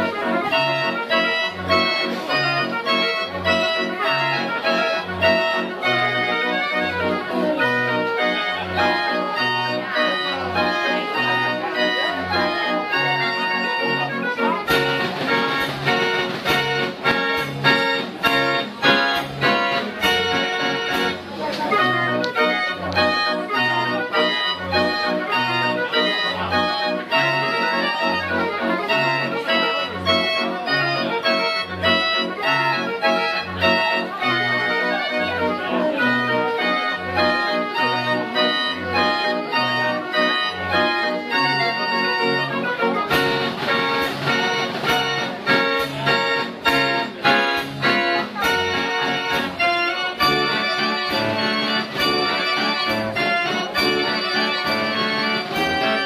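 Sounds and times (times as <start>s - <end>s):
fairground organ playing a tune: 0.0s - 56.0s
sharp percussion beats: 14.7s - 21.3s, 43.1s - 56.0s.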